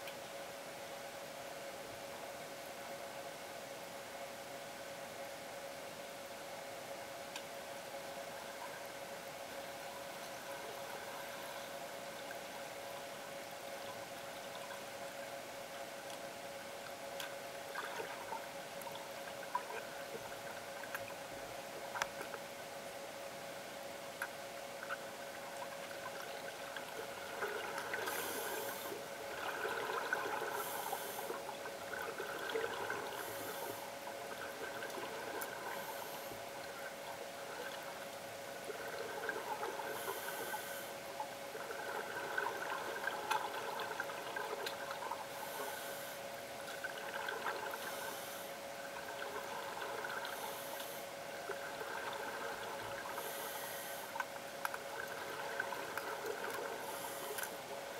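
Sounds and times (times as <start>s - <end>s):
steady hum: 0.0s - 57.9s
exhaled bubbles underwater: 17.6s - 22.3s, 24.8s - 53.7s, 54.4s - 57.9s
regulator breathing hiss: 28.0s - 29.0s, 30.5s - 31.4s, 33.2s - 33.9s, 35.7s - 36.4s, 39.9s - 41.0s, 45.4s - 46.2s, 47.8s - 48.6s, 50.3s - 51.1s, 53.2s - 54.2s, 56.8s - 57.6s.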